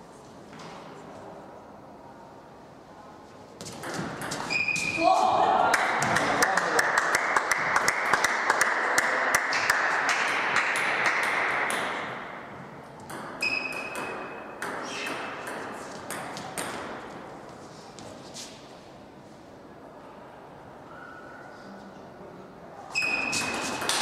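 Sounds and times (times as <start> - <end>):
table tennis balls clicking: 23.4 - 24.0.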